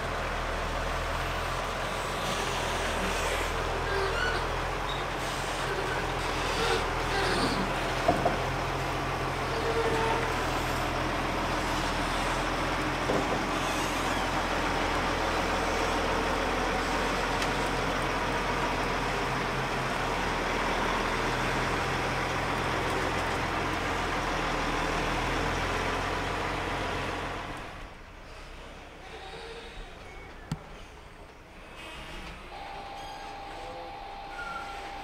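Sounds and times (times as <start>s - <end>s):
truck diesel engine running: 0.0s - 29.0s.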